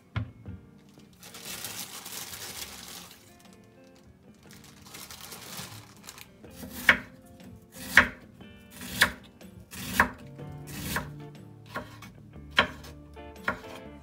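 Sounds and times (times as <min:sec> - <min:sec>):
knife cutting on cutting board: 0:06.5 - 0:07.1, 0:07.8 - 0:11.1, 0:11.7 - 0:13.8.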